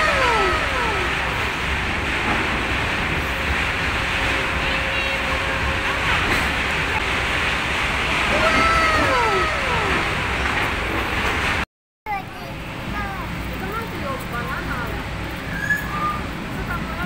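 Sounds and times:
steady rushing noise: 0.0s - 15.5s
birds whistling downward calls: 15.4s - 16.3s.

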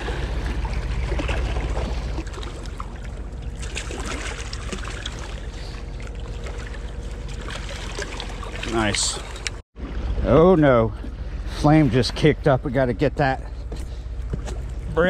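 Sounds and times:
fish splashing in shallows: 0.0s - 10.2s
steady low rumble: 0.0s - 15.0s
water sloshing: 0.0s - 15.0s.

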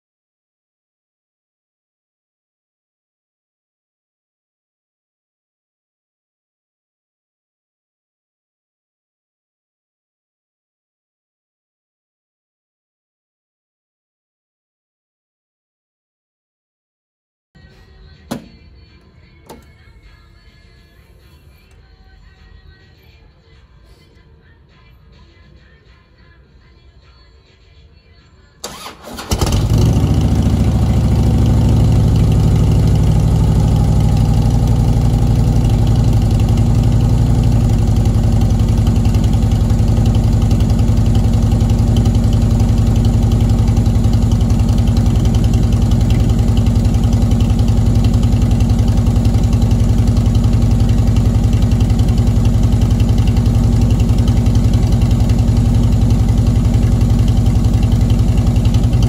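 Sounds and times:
motorcycle engine idling: 28.7s - 59.0s.

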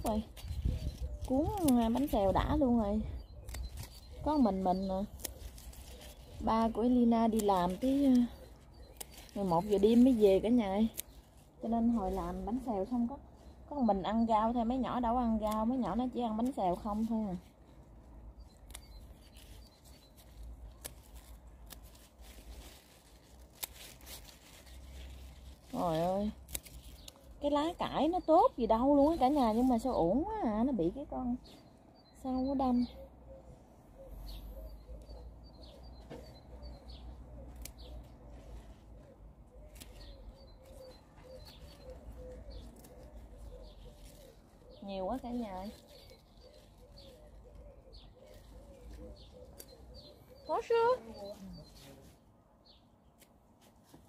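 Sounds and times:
scissors snipping stems: 0.0s - 13.1s, 14.2s - 17.4s, 18.3s - 30.2s, 34.9s - 38.8s, 39.5s - 47.2s, 48.2s - 51.3s, 53.1s - 54.0s
small birds chirping: 0.0s - 54.0s
pigeon cooing: 38.6s - 44.9s, 45.9s - 51.2s.

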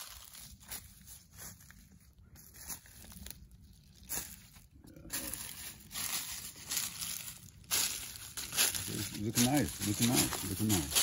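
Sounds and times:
footsteps crunching dry leaves: 0.0s - 11.0s.

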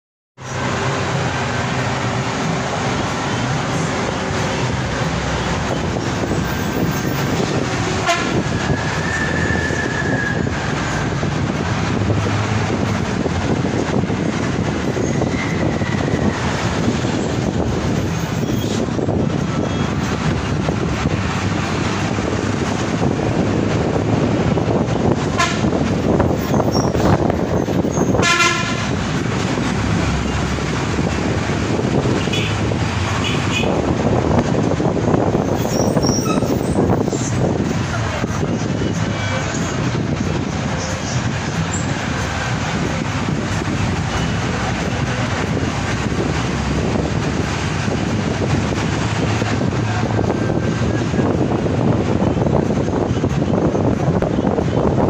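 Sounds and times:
bus engine and road rumble: 0.4s - 55.0s
vehicle horn: 8.0s - 8.5s, 25.3s - 25.8s, 28.1s - 29.0s, 32.2s - 32.6s, 33.2s - 33.8s.

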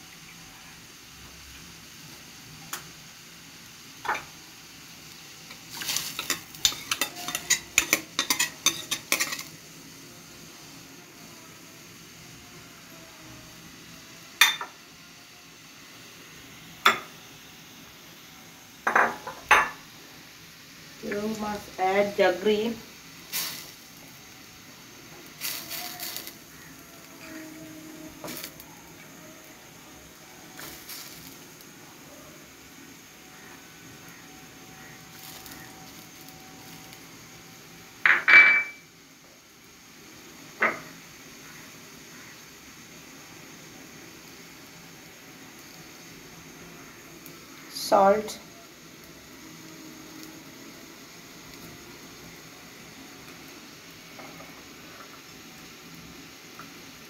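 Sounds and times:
scraping and clinking in pan: 5.7s - 9.5s.

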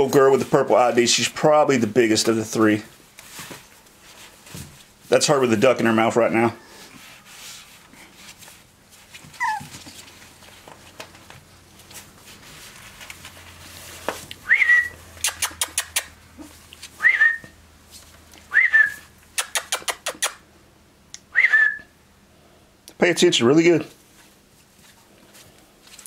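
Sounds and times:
person whistling rising notes: 14.4s - 15.0s, 17.0s - 17.5s, 18.5s - 19.0s, 21.3s - 21.9s
sharp clicks: 15.2s - 16.1s, 19.4s - 20.4s.

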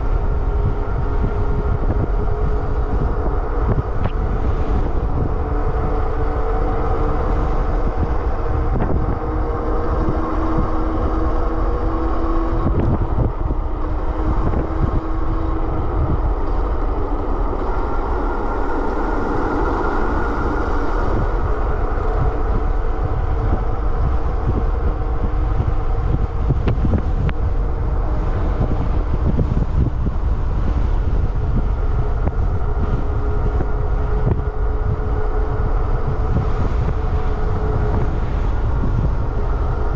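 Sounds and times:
tyre and drivetrain hum: 0.0s - 39.9s
wind buffeting microphone: 0.0s - 39.9s.

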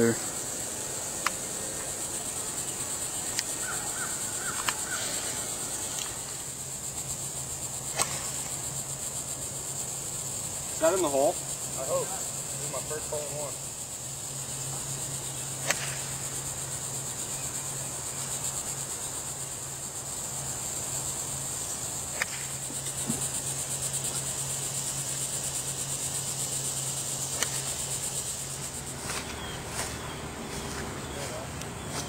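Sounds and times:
insects chorus: 0.0s - 32.0s
sharp clicks: 3.3s - 3.5s.

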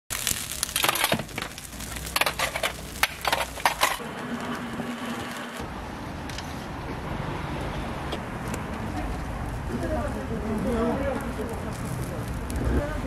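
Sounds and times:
pancakes sizzling on oiled griddle: 0.1s - 5.6s.

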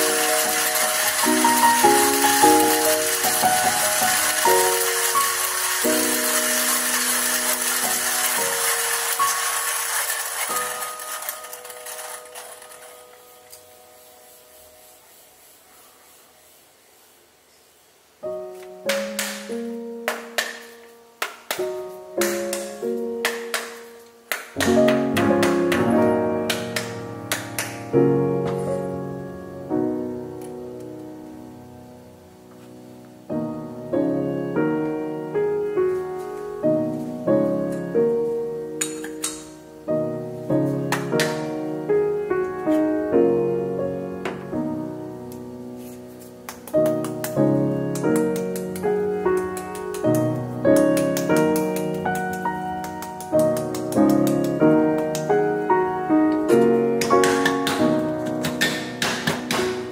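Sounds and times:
hand coffee grinder grinding beans: 0.0s - 13.8s, 46.7s - 55.5s
piano chords: 0.0s - 15.6s, 18.1s - 59.9s.

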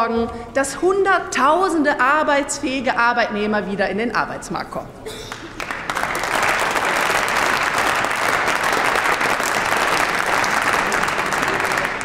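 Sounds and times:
crowd applauding: 5.2s - 12.0s.

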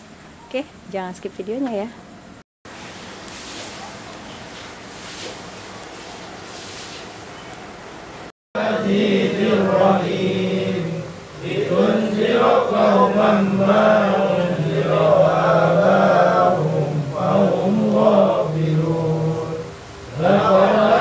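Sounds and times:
men chanting together: 8.6s - 21.0s.

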